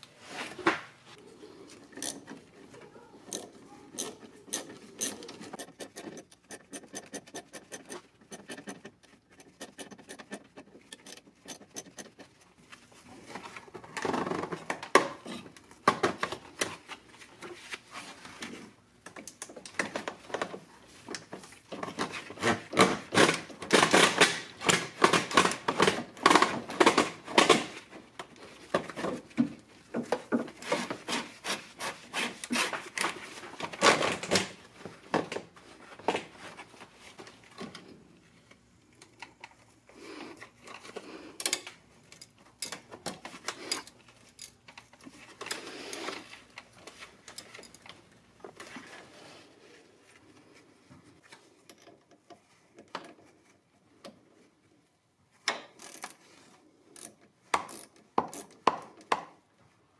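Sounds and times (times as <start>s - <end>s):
rubber hose rubbing and scraping: 0.0s - 15.6s, 20.8s - 37.5s
hand ratchet clicking: 3.3s - 12.2s.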